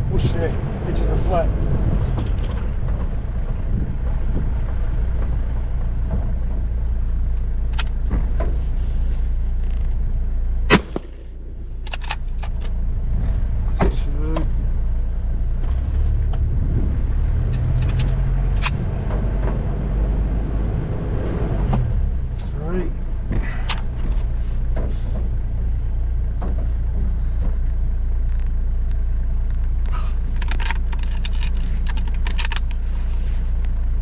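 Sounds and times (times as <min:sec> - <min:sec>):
vehicle engine and tyres on dirt: 0:00.0 - 0:34.0
rattles and knocks: 0:01.6 - 0:10.2, 0:15.4 - 0:20.3, 0:21.4 - 0:28.6, 0:29.5 - 0:33.0.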